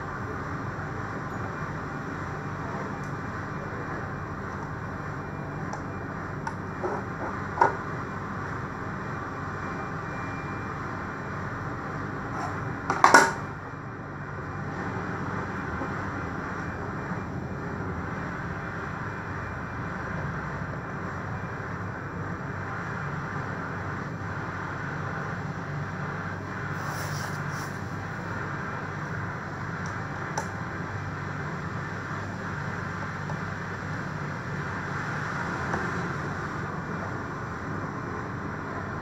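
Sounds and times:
steady background hum: 0.0 - 39.0.

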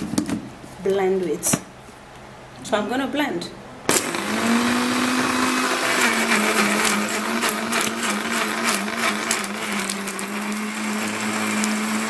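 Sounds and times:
blender motor running: 3.9 - 12.0.

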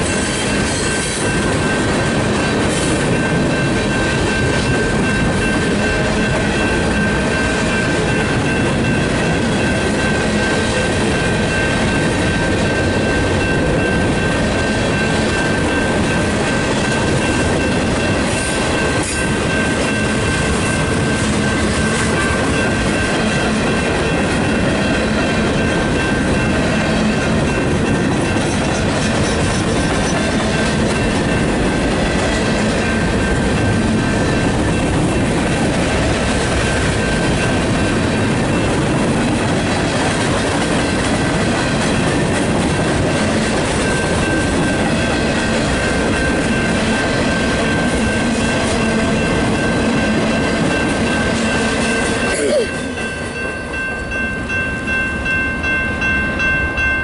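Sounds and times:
train wheels rumbling on rails: 0.0 - 57.0
high ringing tones: 43.8 - 57.0.

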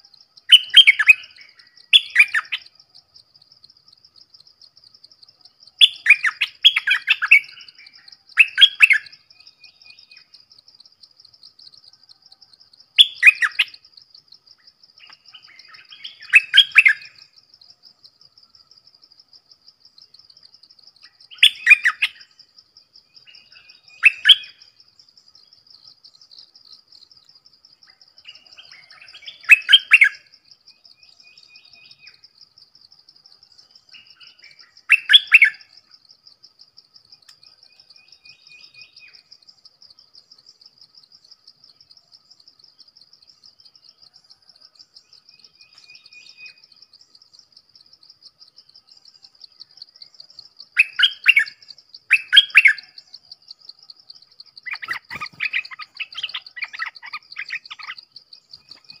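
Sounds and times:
insect trill: 0.0 - 59.0
bird singing burbling phrases: 54.6 - 58.0.

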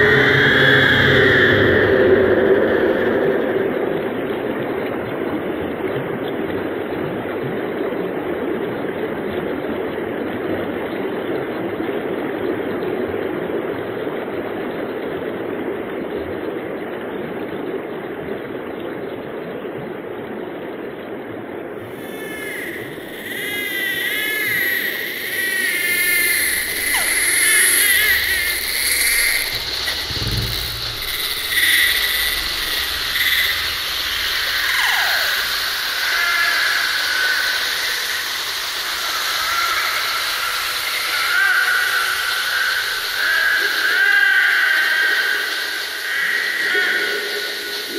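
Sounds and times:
steady rushing noise: 21.7 - 39.4
low rumble: 21.8 - 34.7
warbling chirping high tones: 21.8 - 43.2
short deep swell: 22.0 - 35.3.

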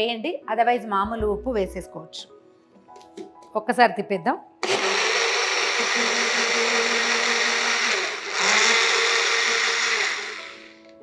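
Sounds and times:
blender motor whirring: 4.6 - 10.9.

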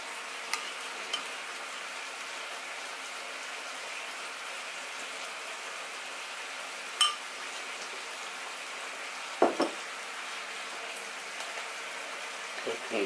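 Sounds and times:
spoon clinking ceramic bowl: 7.0 - 7.2.

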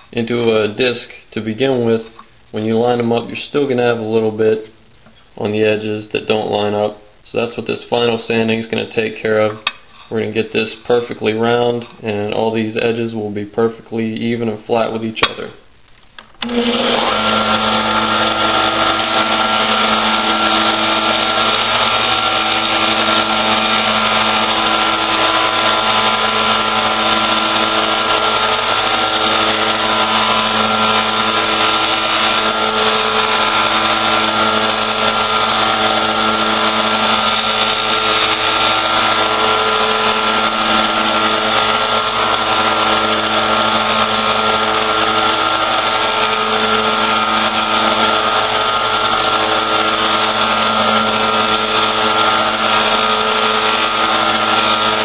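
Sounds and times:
disc sander motor hum: 16.4 - 55.0.

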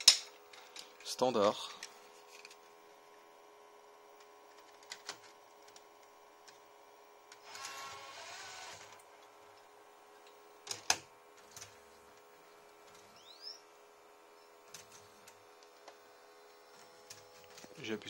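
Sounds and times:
faint steady hum: 0.0 - 18.0
tape mechanism whirring: 7.3 - 9.1.

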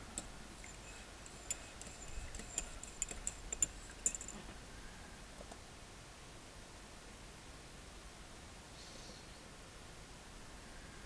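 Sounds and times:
small sharp clicks and taps: 0.1 - 4.4.

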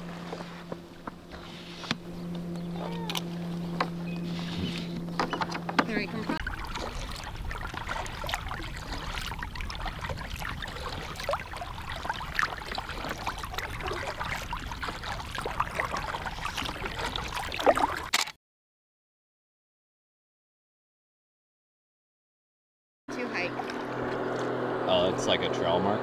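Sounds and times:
low rumble: 0.0 - 17.6
water splashing around kayak: 0.0 - 18.1.

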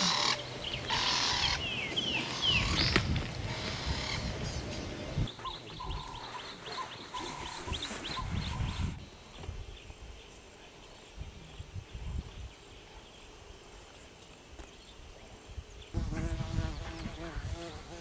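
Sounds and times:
bird chirps: 4.0 - 10.0.

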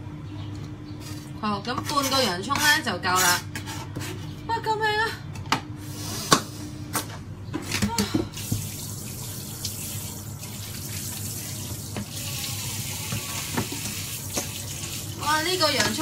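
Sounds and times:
tap running into a sink: 8.4 - 8.8.

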